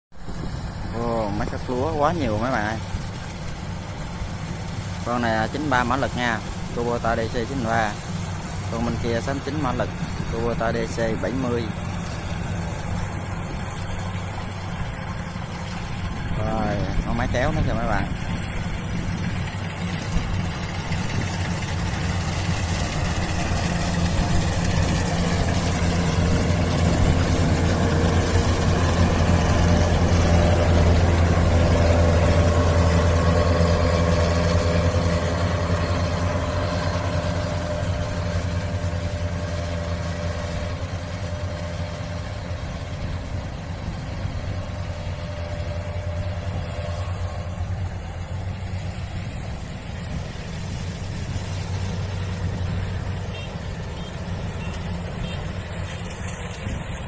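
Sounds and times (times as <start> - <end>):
combine harvester engine running: 0.1 - 57.0.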